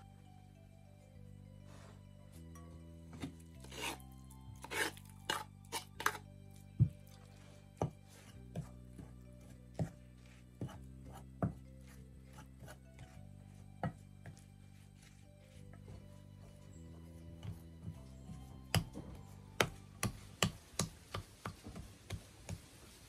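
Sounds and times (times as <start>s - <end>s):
soft background music: 0.0s - 23.0s
spoon scraping glass bowl: 3.2s - 6.3s.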